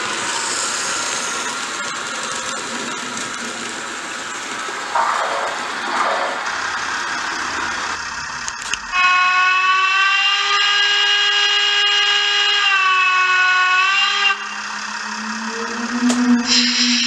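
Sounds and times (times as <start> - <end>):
steam whistle through small loudspeaker: 8.9 - 17.0
low hum: 13.7 - 17.0.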